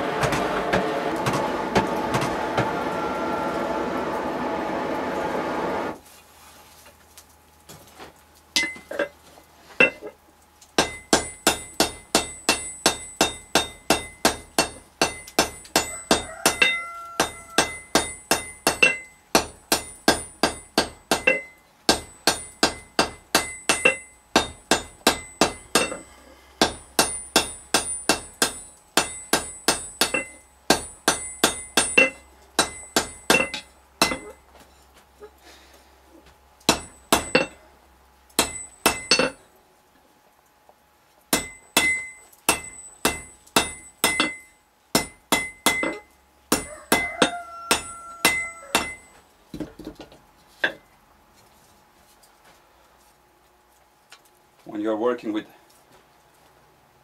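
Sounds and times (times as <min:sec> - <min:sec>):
hammer striking metal on anvil: 0:08.6 - 0:08.9, 0:10.8 - 0:34.4, 0:36.7 - 0:37.6, 0:38.4 - 0:39.4, 0:41.3 - 0:49.2.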